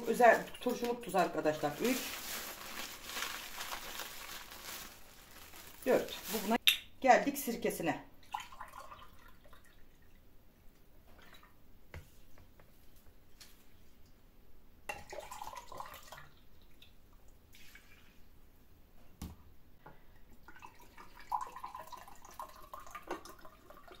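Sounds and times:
liquid pouring and splashing: 0.0s - 6.6s, 8.2s - 10.2s, 14.9s - 16.9s, 17.5s - 18.2s, 20.4s - 24.0s.

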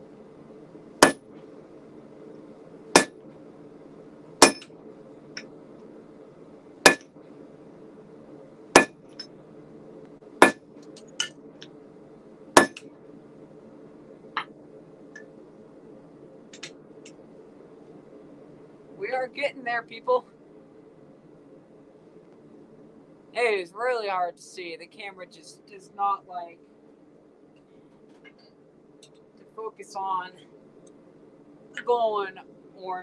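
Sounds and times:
gas forge humming: 0.0s - 33.0s
hammer strikes ringing on anvil: 4.4s - 4.7s, 12.6s - 12.8s.

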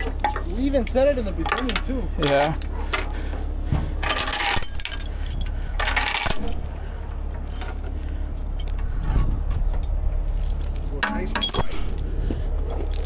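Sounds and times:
steel chain rattling: 0.0s - 3.1s, 4.0s - 12.1s
truck engine running: 0.0s - 13.0s.

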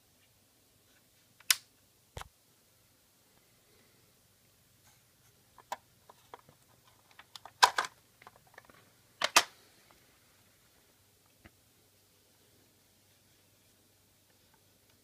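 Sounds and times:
handling clicks and rustles: 5.5s - 9.6s.

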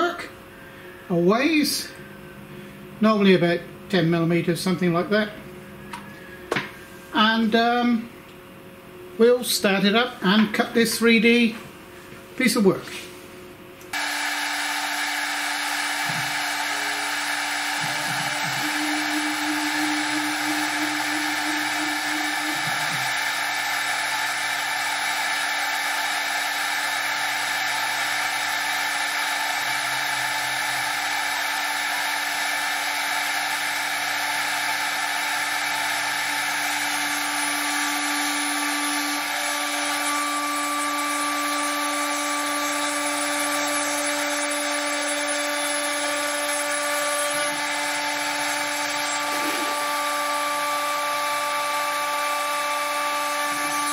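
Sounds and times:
steady tones: 13.9s - 42.0s
end mill cutting wood: 13.9s - 53.9s
router spindle whining: 13.9s - 53.9s.

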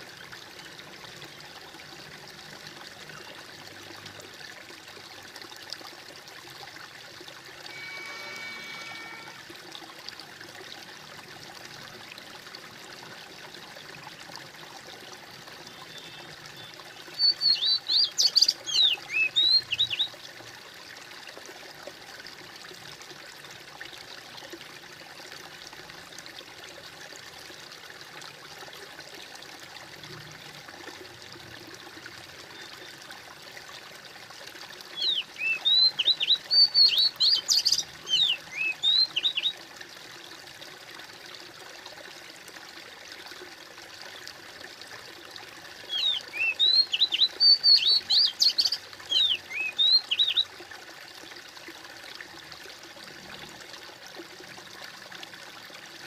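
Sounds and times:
trickling stream: 0.0s - 56.0s
songbird chirping: 15.9s - 20.1s, 35.0s - 39.6s, 45.9s - 50.5s.

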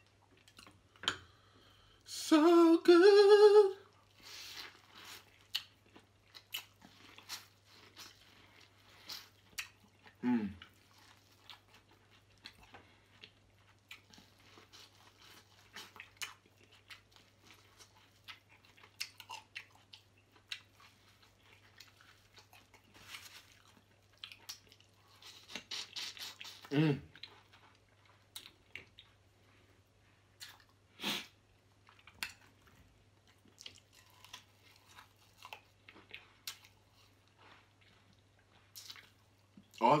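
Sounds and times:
chewing corn on the cob: 0.0s - 1.0s, 3.8s - 40.0s
person humming mm: 2.1s - 3.8s, 10.2s - 10.6s, 26.6s - 27.1s.

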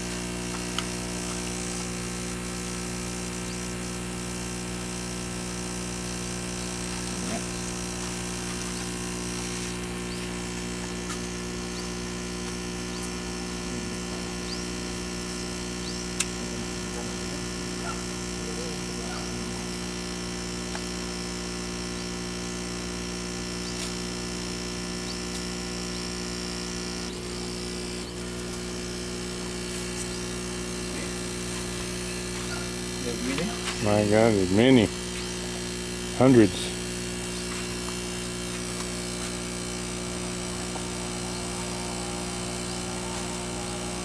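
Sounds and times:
electric pump buzzing hum: 0.0s - 44.0s
sharp click: 16.1s - 16.4s.

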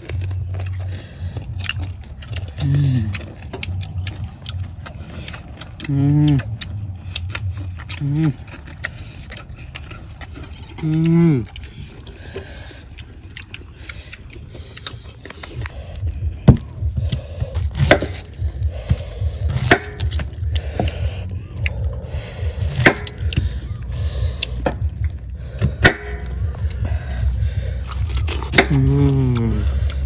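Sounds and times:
low rumble: 0.0s - 30.0s
sharp knocks and cracks: 16.4s - 21.0s, 22.7s - 23.5s, 25.6s - 26.8s.

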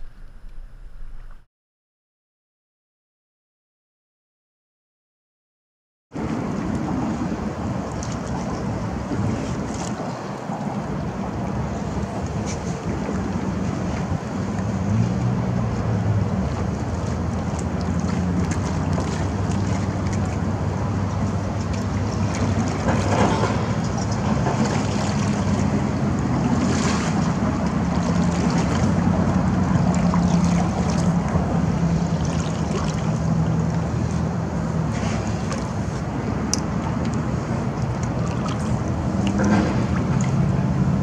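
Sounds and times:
steady low hum: 0.0s - 1.5s
kayak paddle splashing: 6.2s - 40.7s
water lapping: 6.2s - 41.0s.

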